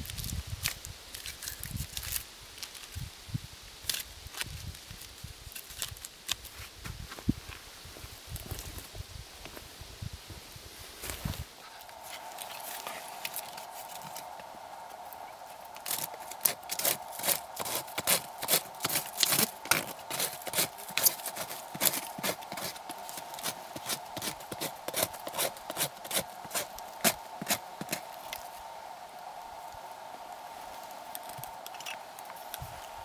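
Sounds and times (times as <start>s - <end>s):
knife shaving wood: 3.9s - 6.6s, 15.6s - 28.5s.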